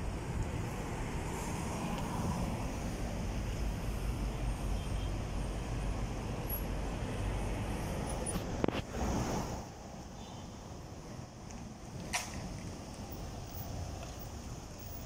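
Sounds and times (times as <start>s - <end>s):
cars driving past: 0.0s - 10.2s.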